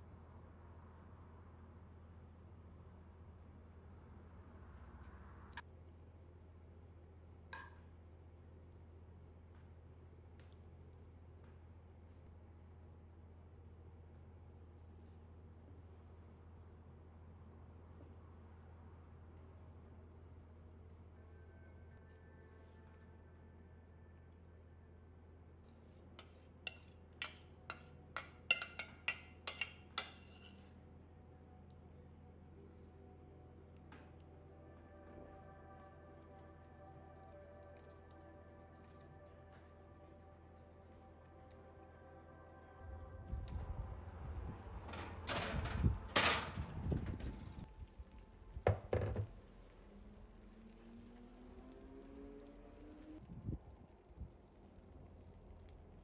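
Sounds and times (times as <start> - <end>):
metal spoon clinking on saucepan: 26.2 - 30.7
glass dish knocking on wood: 48.7 - 49.3.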